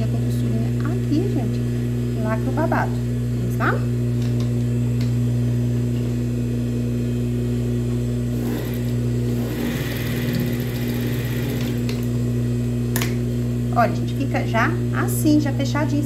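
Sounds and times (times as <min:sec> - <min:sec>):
sewing machine motor humming: 0:08.3 - 0:12.1
sewing machine stitching rattle: 0:08.4 - 0:11.8.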